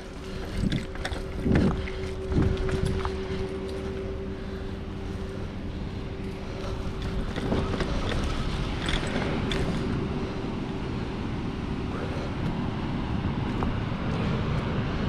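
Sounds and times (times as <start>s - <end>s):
wind rumbling on microphone: 0.0s - 15.0s
light clicks and rattles: 0.1s - 4.2s, 6.1s - 10.2s.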